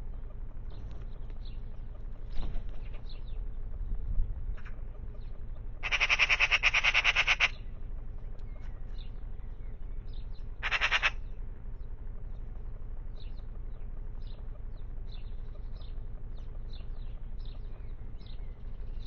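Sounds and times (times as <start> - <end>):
magpie chattering: 5.8 - 7.6, 10.6 - 11.2.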